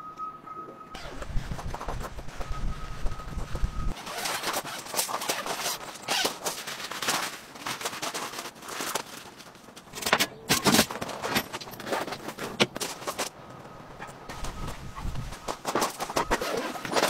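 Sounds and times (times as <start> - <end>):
nylon tent fabric rustling: 1.0 - 9.8, 14.0 - 17.0.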